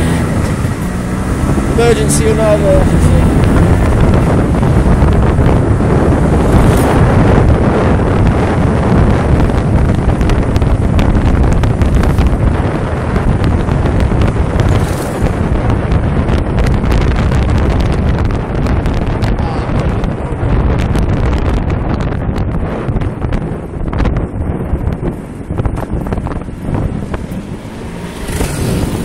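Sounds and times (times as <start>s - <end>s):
wind buffeting microphone: 0.0s - 29.0s
scooter engine running: 24.4s - 29.0s.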